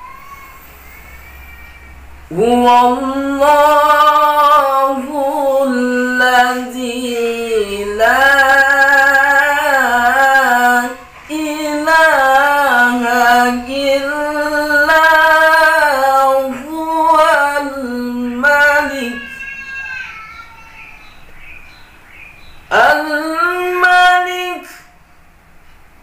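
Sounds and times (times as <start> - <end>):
man chanting melodically: 2.3 - 19.4, 22.7 - 24.9.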